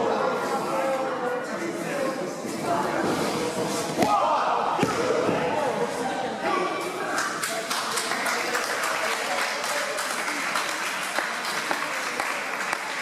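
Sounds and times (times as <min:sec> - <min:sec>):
crowd clapping: 0:07.1 - 0:13.0.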